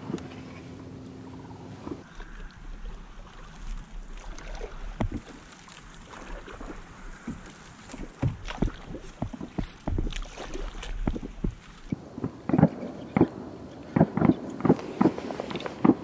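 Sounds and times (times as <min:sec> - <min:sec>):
splashing steps in water: 0:03.2 - 0:11.9.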